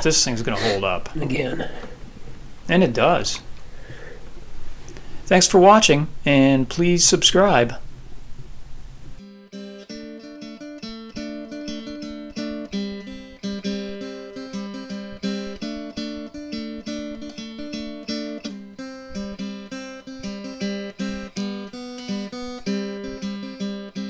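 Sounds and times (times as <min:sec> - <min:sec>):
acoustic guitar plucking: 0:09.2 - 0:24.0.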